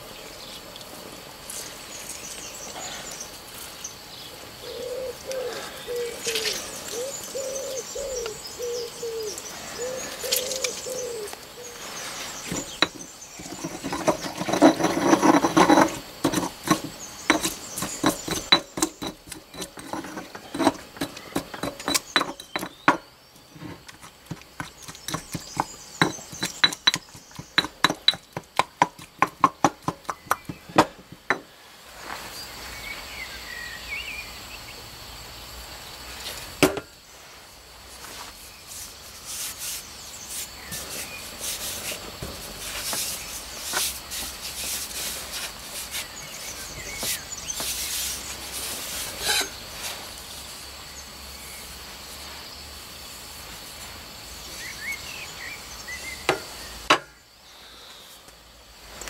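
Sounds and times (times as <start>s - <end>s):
bird calling: 4.2s - 14.5s
pestle grinding in stone mortar: 12.4s - 31.5s
pestle pounding: 12.5s - 23.0s, 23.8s - 31.5s.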